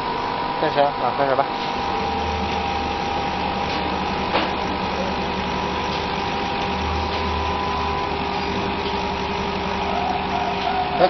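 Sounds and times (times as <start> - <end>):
laser engraver humming: 0.0 - 11.0.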